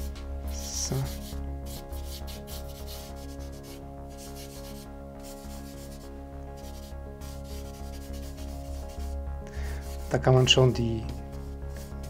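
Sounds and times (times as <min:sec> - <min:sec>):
charcoal scratching on paper: 0:00.5 - 0:10.2, 0:11.2 - 0:12.0.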